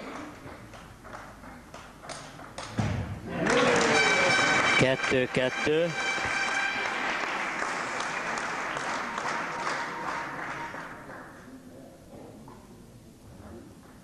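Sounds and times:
spectators applauding: 0:03.3 - 0:11.6.

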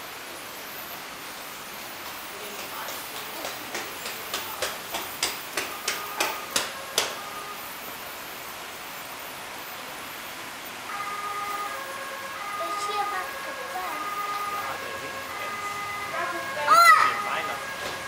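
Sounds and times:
steady hiss: 0:00.0 - 0:18.0
toy fire engine siren: 0:05.8 - 0:07.7, 0:10.9 - 0:18.0.

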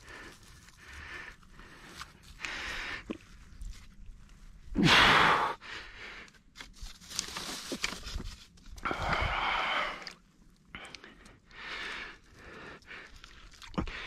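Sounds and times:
rustling and handling sounds: 0:00.0 - 0:02.4, 0:03.1 - 0:04.6, 0:06.2 - 0:08.8
man sighing with effort: 0:04.8 - 0:05.6.

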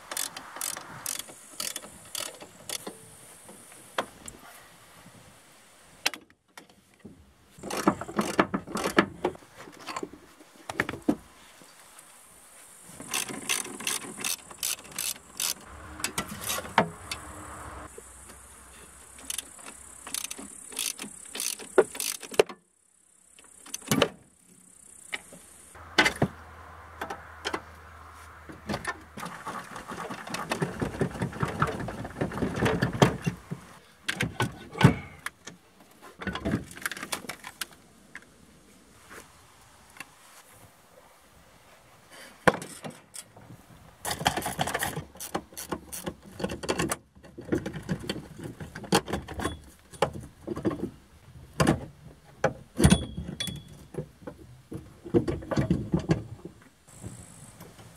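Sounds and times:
socket ratchet clicking: 0:00.0 - 0:02.9, 0:13.1 - 0:15.7, 0:19.2 - 0:22.4.

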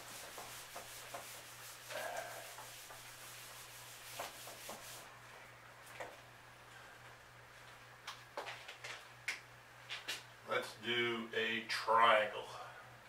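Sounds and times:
eraser wiping whiteboard: 0:00.0 - 0:05.1.

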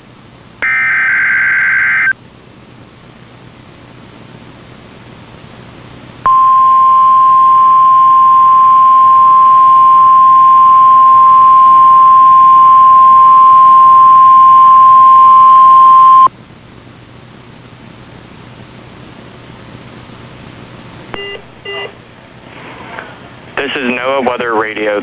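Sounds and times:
high alarm beep: 0:06.3 - 0:16.3
faint radio hiss: 0:22.0 - 0:25.0.

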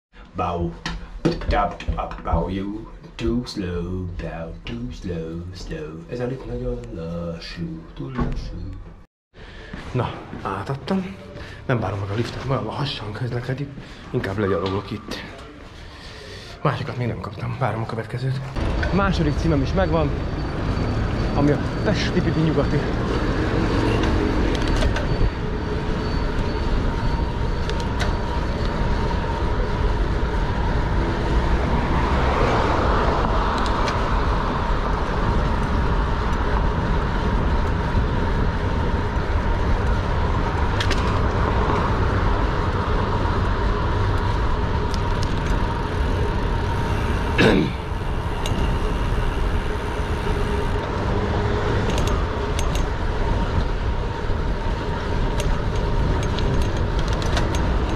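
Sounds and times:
city street traffic: 0:00.1 - 0:57.9.

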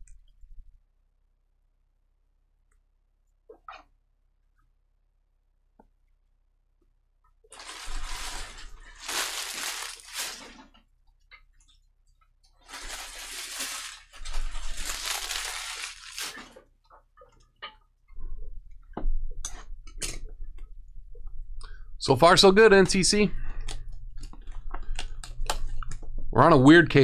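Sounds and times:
wrappers tearing and crinkling: 0:07.6 - 0:10.7, 0:12.6 - 0:16.6.

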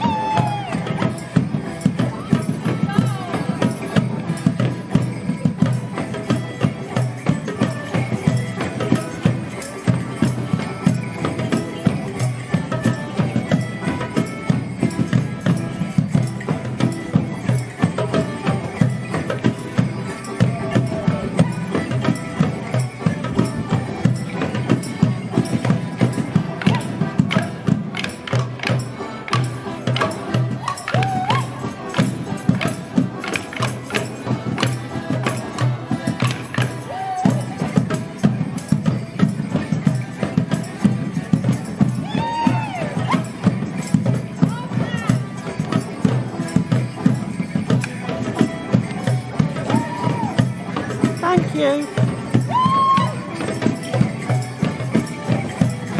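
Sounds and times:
person whooping: 0:00.0 - 0:01.0, 0:30.6 - 0:31.5, 0:42.0 - 0:43.2, 0:49.7 - 0:50.4, 0:52.5 - 0:53.2
folk dance tune on melodeons: 0:00.0 - 0:55.9.

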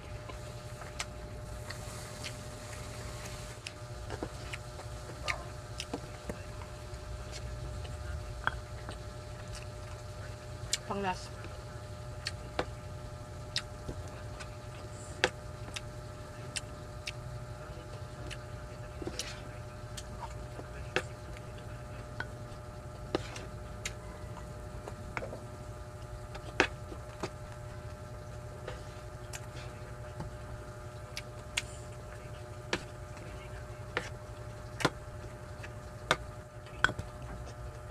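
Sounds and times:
steady low hum: 0:00.0 - 0:37.9
wet chewing and lip-smacking: 0:00.2 - 0:11.5, 0:12.2 - 0:12.8, 0:13.4 - 0:17.2, 0:17.8 - 0:22.3.

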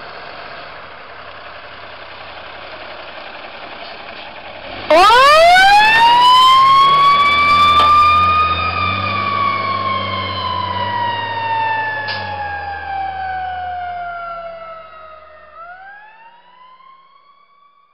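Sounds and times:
diesel engine rumble: 0:00.0 - 0:17.4
mechanical siren wailing: 0:04.9 - 0:17.9.

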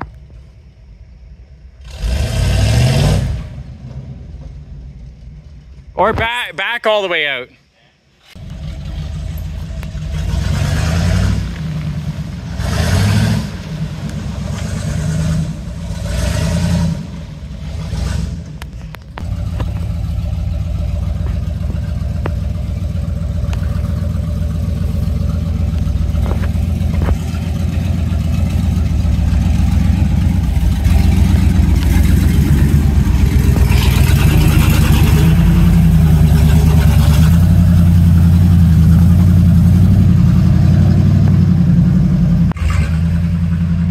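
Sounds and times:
truck engine revving: 0:01.8 - 0:06.2, 0:08.4 - 0:43.9.

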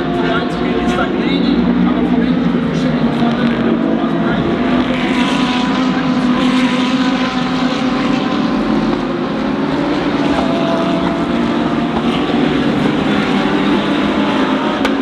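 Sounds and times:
race car engines droning: 0:00.0 - 0:15.0.

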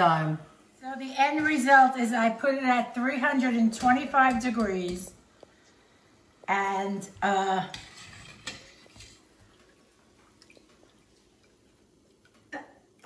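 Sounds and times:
oil sizzling: 0:04.1 - 0:13.0.

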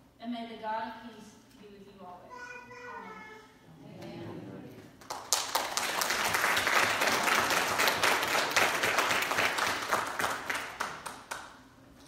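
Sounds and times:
congregation applauding: 0:05.0 - 0:11.7.

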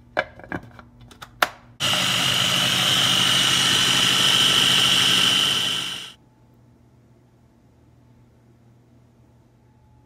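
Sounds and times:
food processor motor whirring: 0:01.8 - 0:06.2.

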